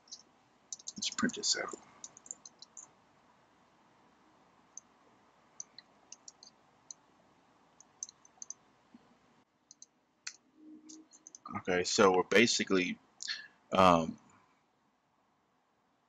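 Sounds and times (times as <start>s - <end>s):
keyboard and mouse clicks: 0.0s - 2.9s, 5.6s - 7.0s, 7.8s - 8.6s, 9.7s - 11.5s
quiet room hiss: 0.0s - 16.0s.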